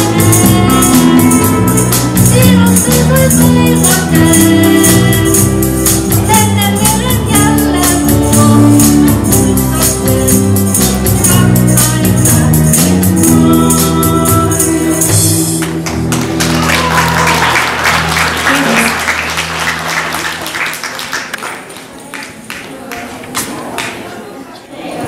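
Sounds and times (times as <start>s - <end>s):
tambourine beat: 0.0s - 15.6s
woman singing: 0.0s - 15.6s
guitar band playing: 0.0s - 21.1s
audience applause: 15.6s - 24.0s.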